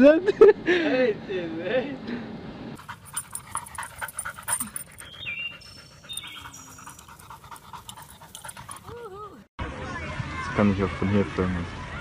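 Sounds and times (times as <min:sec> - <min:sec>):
dog chirps: 0:02.8 - 0:09.0
dog panting rapidly: 0:02.8 - 0:09.5.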